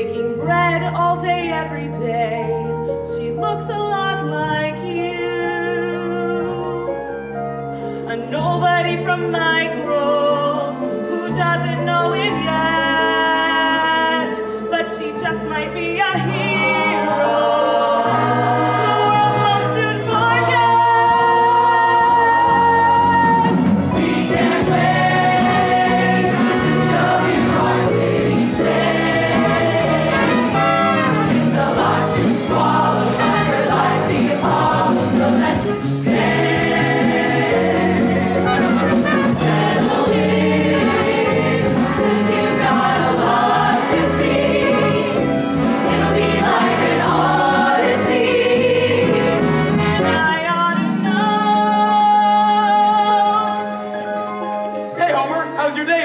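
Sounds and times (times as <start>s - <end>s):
instrumental accompaniment: 4.8s - 56.0s
ensemble singing chorus: 16.2s - 19.8s, 24.0s - 49.8s.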